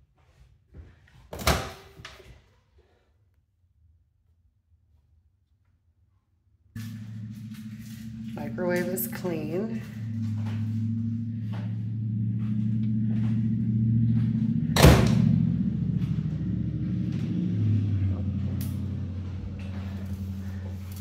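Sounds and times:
low hum: 0:06.8 - 0:21.0.

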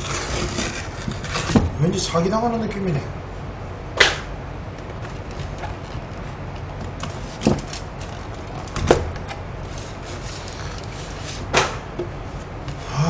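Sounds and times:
cardboard rustling and crackling: 0:00.0 - 0:01.8, 0:04.8 - 0:12.8
sharp cardboard clacks: 0:04.9 - 0:12.1.

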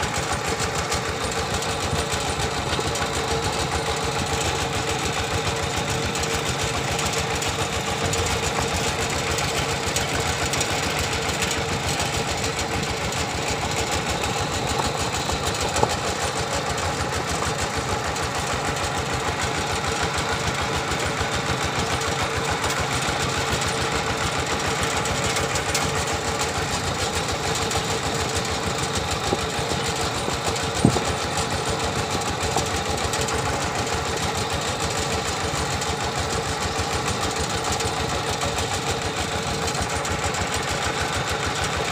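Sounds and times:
diesel tractor engine chugging: 0:00.0 - 0:41.9
sharp knocks: 0:30.6 - 0:31.2.

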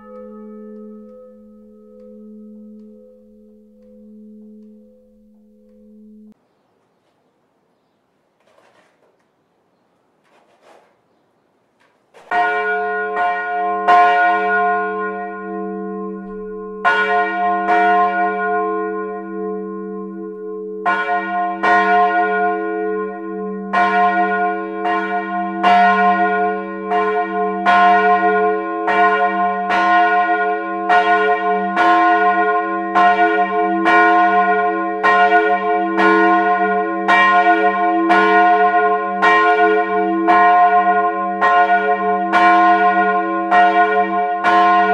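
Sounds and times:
large church bell ringing: 0:00.0 - 0:06.4, 0:12.3 - 0:44.9
long low bell hum: 0:00.0 - 0:06.4, 0:12.4 - 0:21.0.

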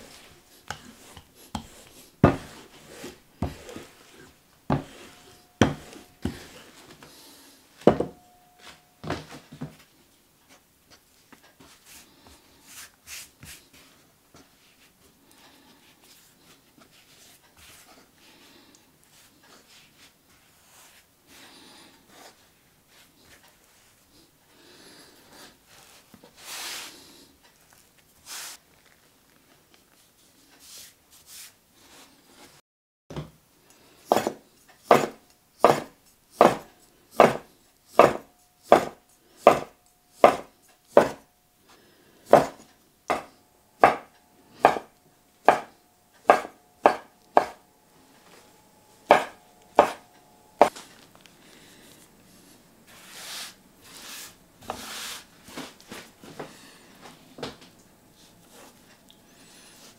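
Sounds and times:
dough rolled on wooden board: 0:00.0 - 0:07.2, 0:07.8 - 0:09.8, 0:34.1 - 0:41.2, 0:42.3 - 0:47.6, 0:49.1 - 0:50.8
knife knocking on wooden board: 0:05.6 - 0:06.4, 0:07.9 - 0:08.2.

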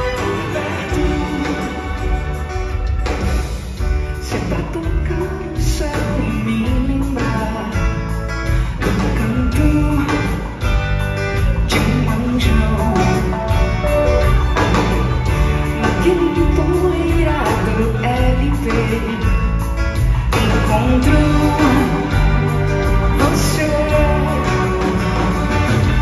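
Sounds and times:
rock band and string orchestra: 0:00.0 - 0:26.0
woman singing: 0:04.2 - 0:07.9, 0:09.0 - 0:10.4, 0:15.8 - 0:19.3, 0:20.4 - 0:22.3, 0:23.2 - 0:24.7.

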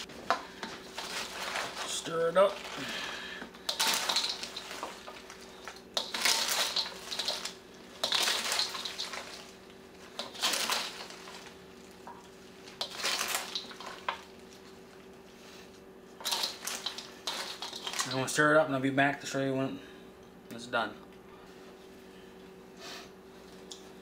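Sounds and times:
salad tossed with crunchy rustling: 0:00.0 - 0:15.1, 0:16.2 - 0:18.3.

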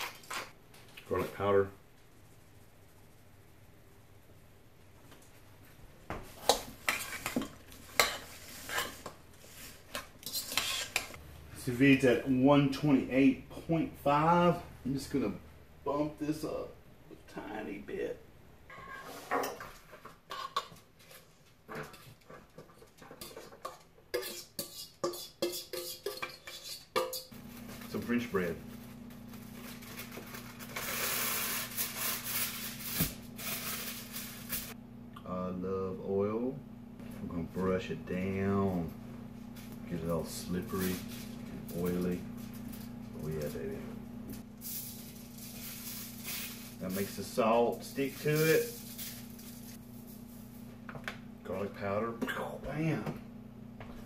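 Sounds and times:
metal fork scraping metal bowl: 0:10.2 - 0:11.2, 0:23.2 - 0:27.4
steady low hum: 0:27.3 - 0:54.0
plastic bag crinkling: 0:29.2 - 0:34.8.

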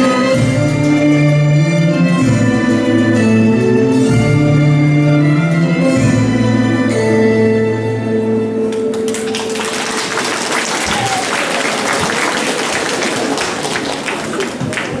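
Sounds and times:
waltz music: 0:00.0 - 0:10.7
audience applauding: 0:08.9 - 0:15.0.

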